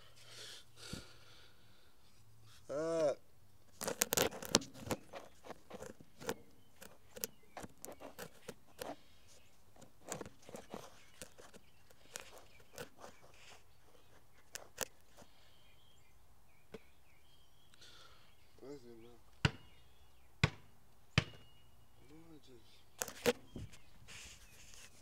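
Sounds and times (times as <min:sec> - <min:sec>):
faint clicks and rustles: 0:03.6 - 0:15.6, 0:23.0 - 0:25.0.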